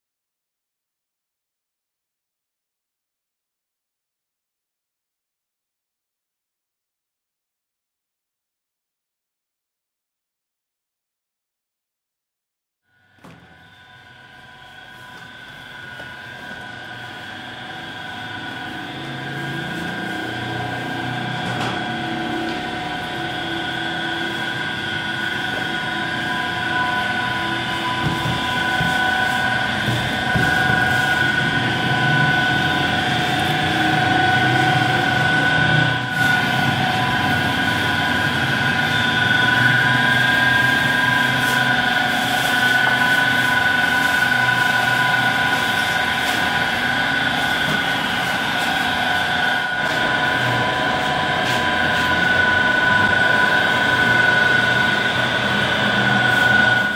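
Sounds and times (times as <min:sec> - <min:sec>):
high machine whine: 0:12.9 - 0:56.9
machinery drone: 0:13.0 - 0:56.9.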